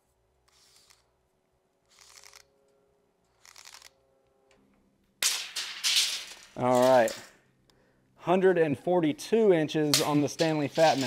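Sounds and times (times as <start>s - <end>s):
tape measure blade pulled out: 0.4s - 1.1s, 1.8s - 2.6s, 3.3s - 4.0s, 10.0s - 11.0s
tape measure blade clatter: 0.5s - 1.1s, 3.3s - 4.0s, 5.3s - 7.4s, 9.9s - 11.0s.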